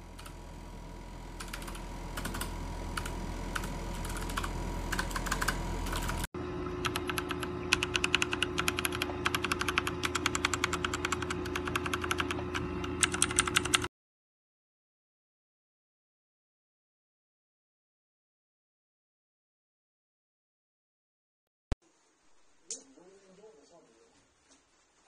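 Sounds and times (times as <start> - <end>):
faint hum: 0.0 - 13.9
mechanical keyboard typing: 1.4 - 13.9.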